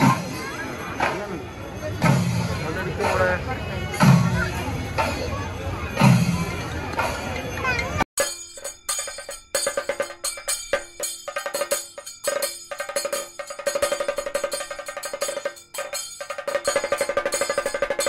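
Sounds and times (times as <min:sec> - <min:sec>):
fast drum strokes: 0:08.2 - 0:18.0.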